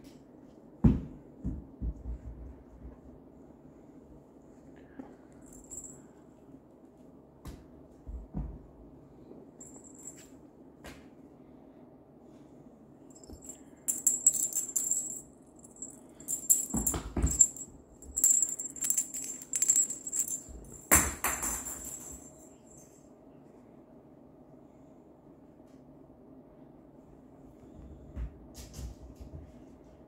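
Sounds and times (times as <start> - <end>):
bell cat toy jingling: 13.2 - 22.8.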